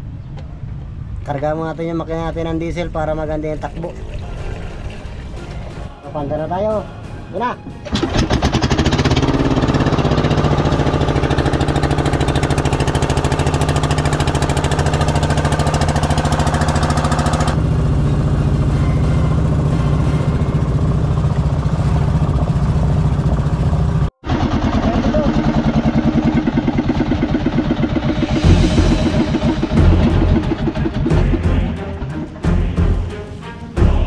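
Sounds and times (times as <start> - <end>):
boat diesel engine running: 7.8 - 33.3.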